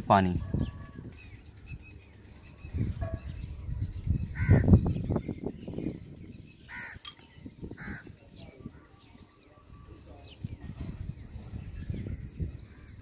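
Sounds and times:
crow cawing: 0:04.4 - 0:04.7, 0:06.7 - 0:07.0.

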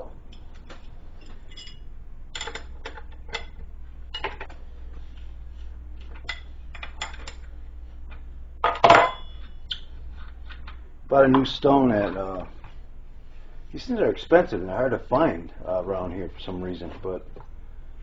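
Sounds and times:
wrench clinking on metal: 0:01.2 - 0:03.6.

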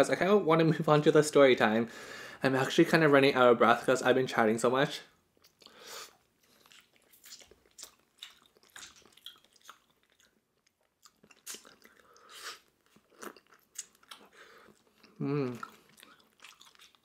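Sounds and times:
mouth clicks and smacks chewing: 0:05.4 - 0:05.8, 0:06.4 - 0:17.0.

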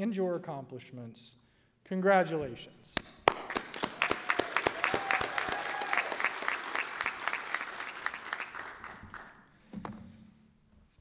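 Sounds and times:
sharp individual claps: 0:02.9 - 0:09.4
audience applauding: 0:03.2 - 0:09.4.

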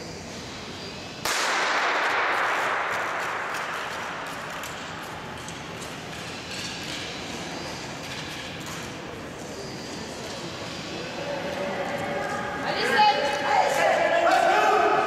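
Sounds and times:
starting gun shot: 0:01.2 - 0:03.0
skate blades scraping ice: 0:02.3 - 0:09.0.

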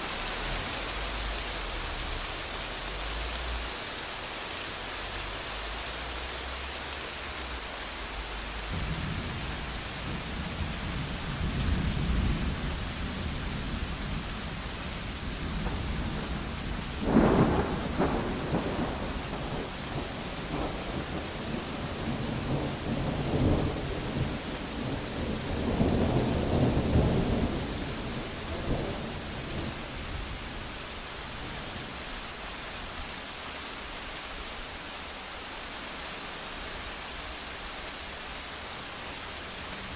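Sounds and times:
rain falling on wet ground: 0:00.0 - 0:39.9
thunder rumbling and clapping: 0:15.3 - 0:29.8.

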